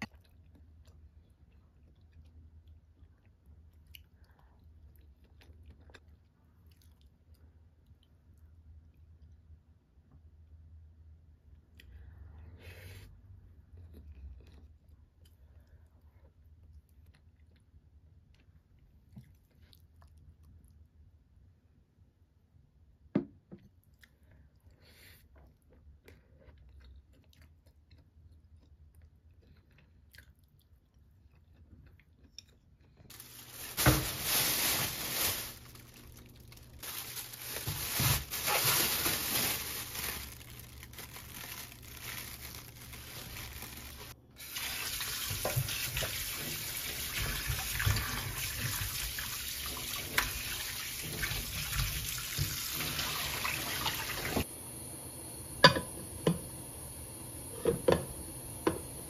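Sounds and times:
tap water running: 33.1s - 35.9s, 43.1s - 54.5s, 55.4s - 59.0s
plastic bag rustling: 33.1s - 54.4s.

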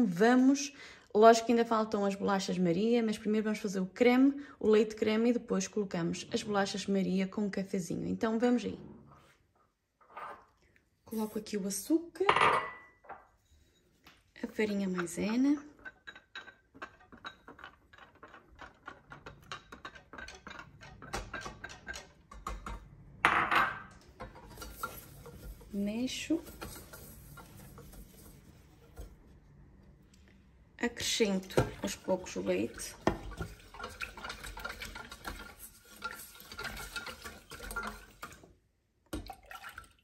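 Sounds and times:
whisk scraping against saucepan: 13.4s - 22.8s, 24.2s - 29.4s, 31.2s - 38.4s
metal spoon clinking in a pot: 14.9s - 22.8s
liquid sloshing: 31.2s - 38.5s, 39.2s - 40.0s.

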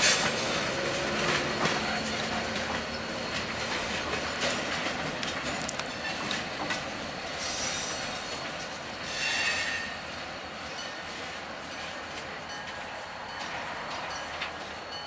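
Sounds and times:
train wheels rolling on rails: 0.0s - 15.0s
high wheel squeal: 0.9s - 4.5s, 5.9s - 10.8s.

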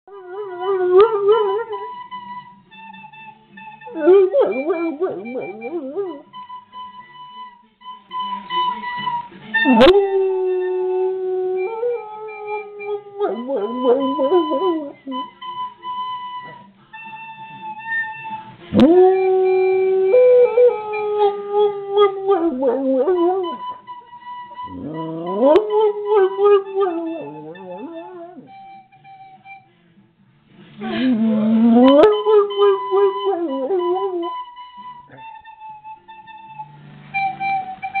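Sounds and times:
dog howling: 0.1s - 1.9s, 3.9s - 6.2s, 9.6s - 15.3s, 18.8s - 23.8s, 24.6s - 28.5s, 30.9s - 34.4s
faint steady high tone: 0.1s - 29.8s.

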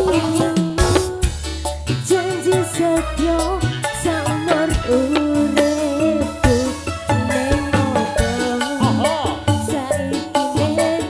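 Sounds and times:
regular drum hits: 0.0s - 2.6s, 4.3s - 11.0s
wavering melody line: 3.2s - 11.0s.

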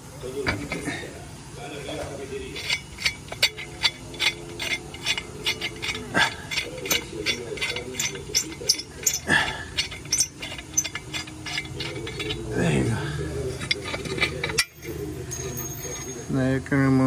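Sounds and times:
ratcheting wrench clicking: 2.6s - 12.6s, 13.6s - 15.0s.

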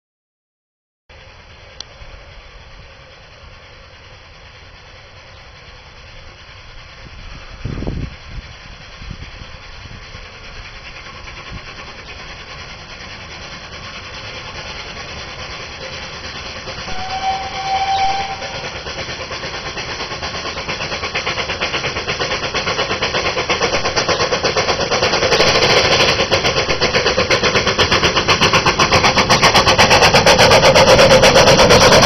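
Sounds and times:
steam locomotive approaching: 1.1s - 32.0s.

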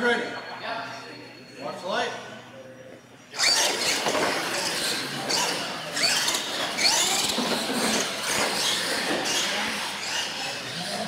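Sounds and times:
electric toy truck motors whining: 3.3s - 11.0s.

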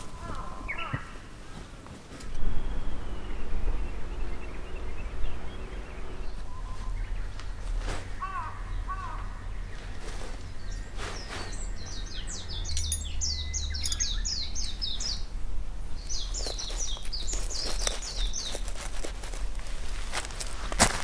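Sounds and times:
songbird singing: 0.0s - 1.6s, 2.2s - 20.6s
low rumble: 2.3s - 10.8s.

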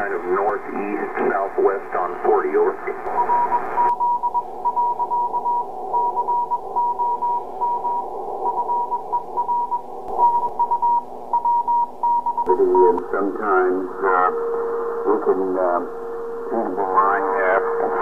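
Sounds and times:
radio band static: 0.0s - 3.9s, 12.4s - 18.0s
radio voice-band signal: 0.0s - 3.9s, 12.4s - 18.0s
morse code beeps: 3.2s - 13.0s.

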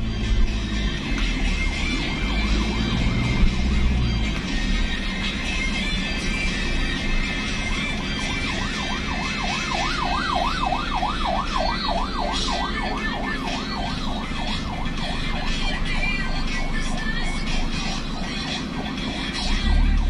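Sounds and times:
ambulance siren yelping: 0.0s - 20.0s
slow traffic rumble: 0.0s - 20.0s.

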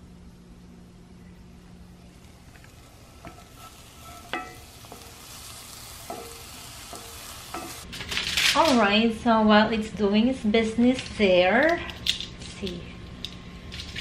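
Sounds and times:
meat patty sizzling in skillet: 1.9s - 8.5s.

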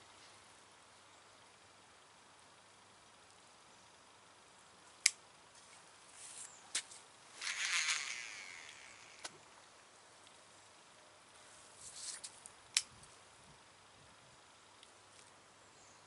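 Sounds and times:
fishing reel clicks: 7.4s - 9.3s
fishing reel whirring: 7.4s - 9.3s.

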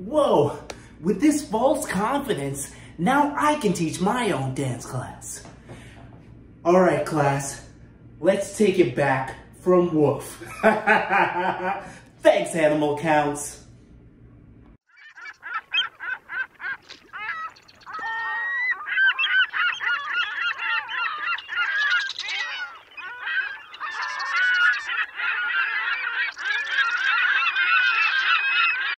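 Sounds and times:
flock of birds calling: 14.9s - 29.0s.

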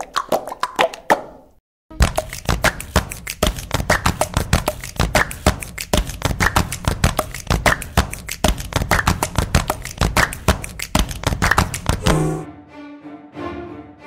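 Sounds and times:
fast hip-hop beat: 1.9s - 12.4s.

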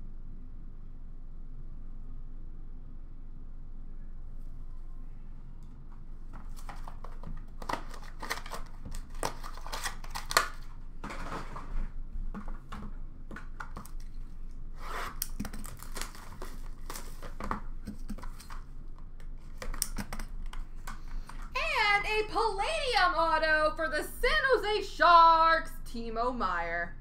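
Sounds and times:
packaging crinkling and tearing: 6.4s - 11.7s, 13.4s - 20.6s.

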